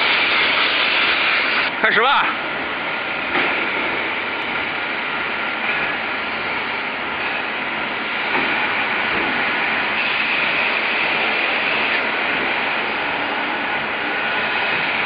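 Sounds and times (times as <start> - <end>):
molding machine rushing noise: 0.0 - 15.0.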